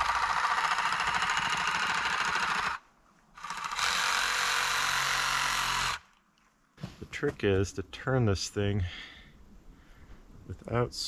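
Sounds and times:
reciprocating saw cutting wood: 0:00.0 - 0:02.8, 0:03.4 - 0:06.1.

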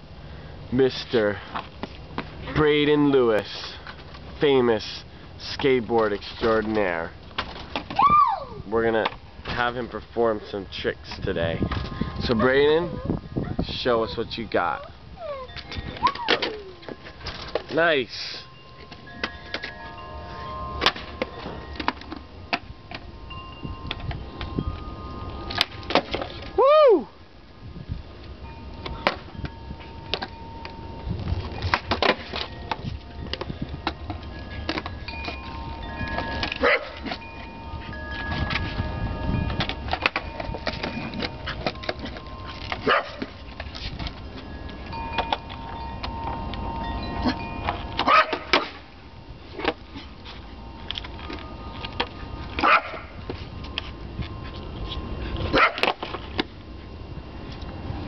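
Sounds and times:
person crying out: 0:26.6 - 0:27.1
skateboard wheels rolling: 0:30.0 - 0:37.5.

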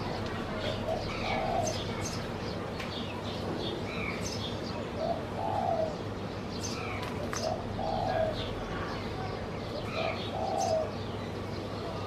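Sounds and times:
dove cooing: 0:00.0 - 0:02.4, 0:04.9 - 0:06.1, 0:06.8 - 0:08.6, 0:09.7 - 0:11.0
small birds chirping: 0:00.0 - 0:12.0.

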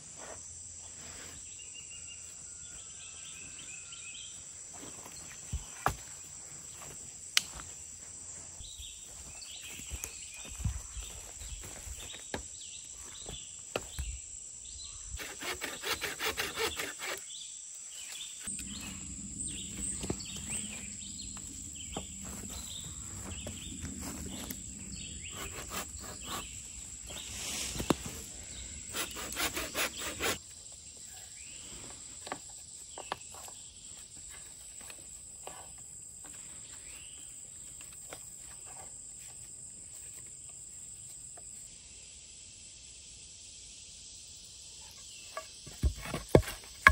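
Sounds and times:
insects chirring: 0:00.0 - 0:46.9
hand saw cutting: 0:15.2 - 0:17.2, 0:25.3 - 0:26.7, 0:28.8 - 0:30.4, 0:46.0 - 0:46.9
wooden poles knocking and scraping: 0:45.3 - 0:46.9.

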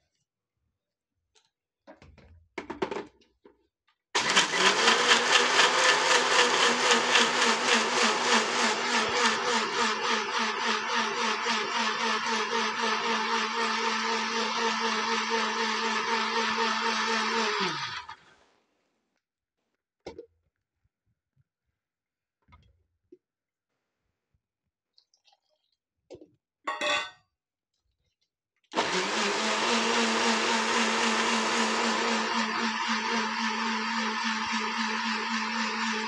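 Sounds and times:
mixer grinder motor running: 0:04.2 - 0:18.2, 0:28.8 - 0:36.0.

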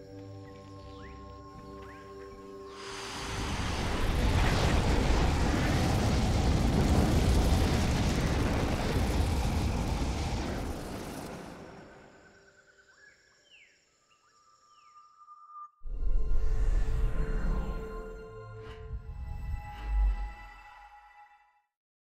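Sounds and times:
fire-breathing flame blast: 0:02.7 - 0:12.0.

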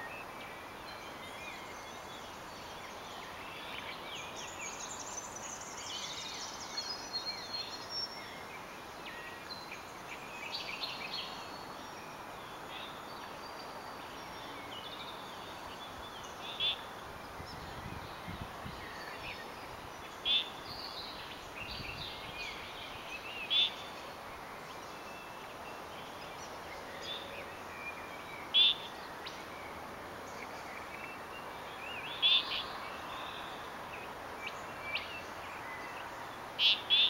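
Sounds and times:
steady background hiss: 0:00.0 - 0:37.0.

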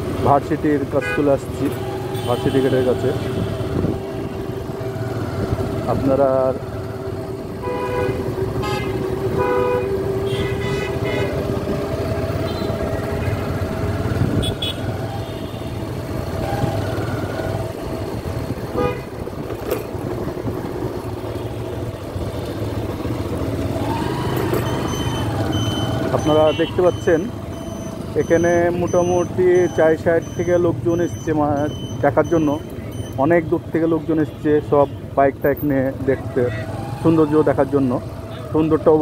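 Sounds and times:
road traffic noise: 0:00.0 - 0:39.0
vehicle horns tooting: 0:00.9 - 0:04.6, 0:07.6 - 0:15.8, 0:18.7 - 0:19.3, 0:24.7 - 0:27.3, 0:36.4 - 0:37.0.

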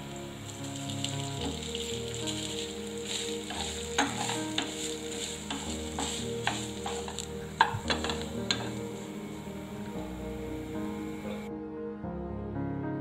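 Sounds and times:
food sizzling in oil: 0:00.0 - 0:11.5
spatula scraping and knocking pan: 0:00.5 - 0:10.0.

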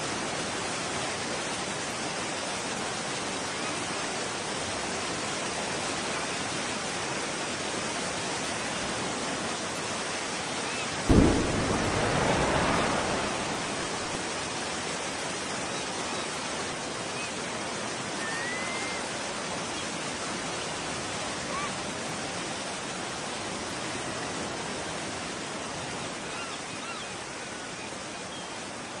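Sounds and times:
blast rumble with rushing hiss: 0:11.1 - 0:15.6
faint high bird chirps: 0:18.2 - 0:19.0.

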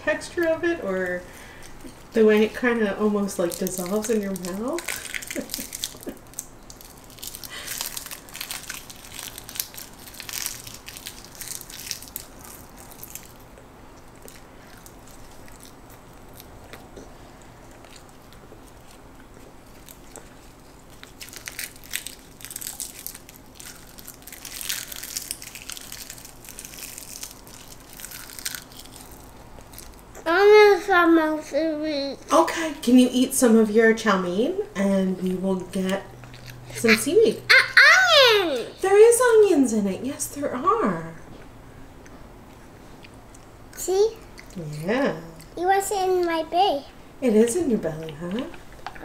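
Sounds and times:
children crunching seaweed snacks: 0:03.2 - 0:30.3, 0:36.2 - 0:37.0.

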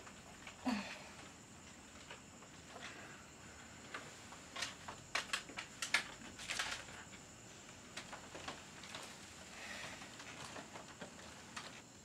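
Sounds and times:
soft rustles: 0:01.6 - 0:11.8.

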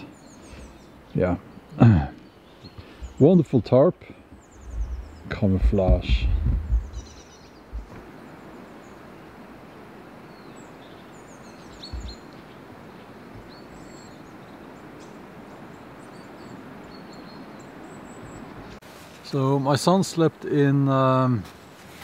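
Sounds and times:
forest ambience hiss: 0:00.0 - 0:22.0
songbirds chirping: 0:00.0 - 0:22.0
low bumps: 0:02.8 - 0:03.3, 0:04.4 - 0:08.2, 0:11.8 - 0:12.2.

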